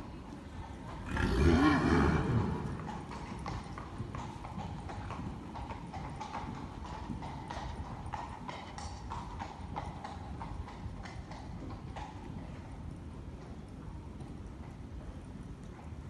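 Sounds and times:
hoofbeats of horse trotting: 0.0 - 16.0
horse whinnying: 1.1 - 3.1.

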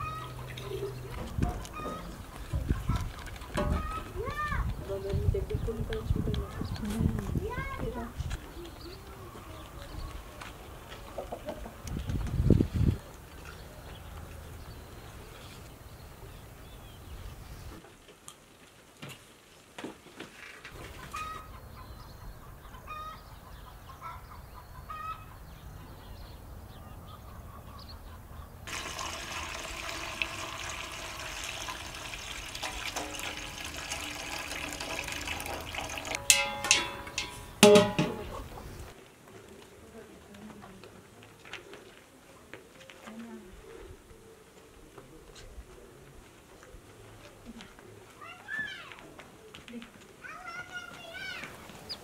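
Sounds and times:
chickens clucking: 0.0 - 6.8, 8.4 - 14.4, 20.7 - 31.0, 31.8 - 39.0
liquid pouring into metal pot: 28.7 - 38.2.

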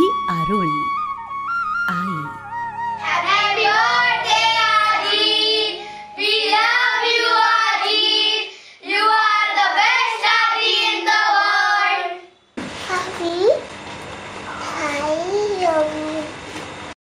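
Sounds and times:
soft instrumental accompaniment: 0.0 - 6.8.

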